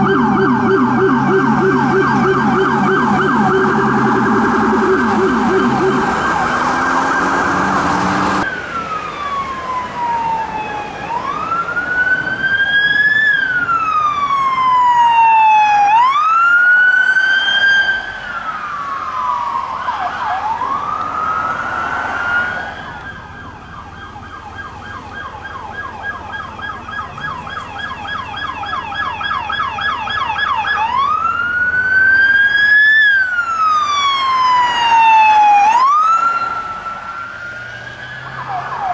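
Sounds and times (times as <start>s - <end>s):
harsh siren sound: 0.0s - 38.9s
police siren fast yelp: 0.0s - 38.9s
police siren wailing: 0.0s - 38.9s.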